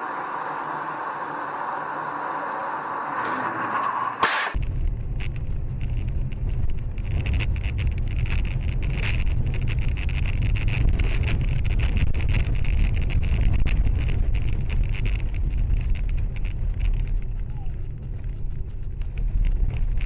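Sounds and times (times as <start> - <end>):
car road and engine rumble: 0.0 - 20.0
small clicks and rattles: 4.6 - 20.0.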